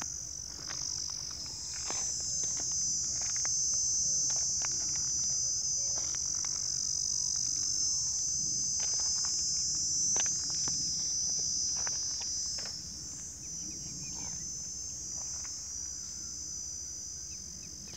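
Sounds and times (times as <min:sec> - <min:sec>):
high-pitched insect chorus: 0:00.0 - 0:17.9.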